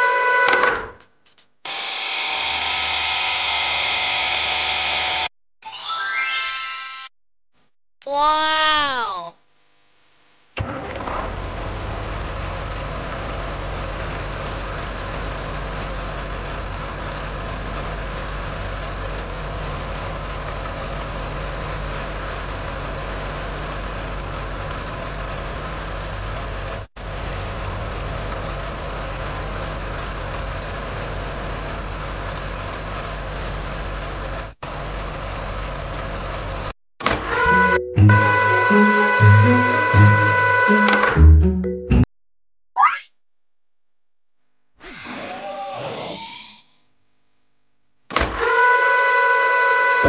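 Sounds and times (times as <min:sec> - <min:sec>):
truck engine drone: 0:01.0 - 0:05.3, 0:10.4 - 0:42.1.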